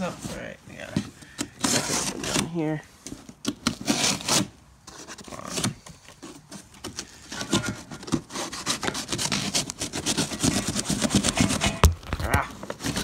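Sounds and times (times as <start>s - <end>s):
cardboard and tape tearing: 1.3s - 13.0s
knife sawing through cardboard: 1.6s - 2.5s, 3.7s - 11.9s.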